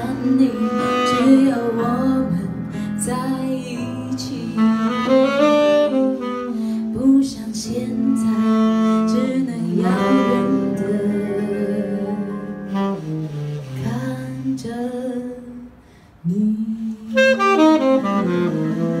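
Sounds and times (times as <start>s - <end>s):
saxophone long notes: 0.0s - 2.9s, 3.7s - 14.6s, 16.8s - 19.0s
woman singing: 0.0s - 5.2s, 6.8s - 13.0s, 13.8s - 17.4s
electric piano: 0.0s - 19.0s.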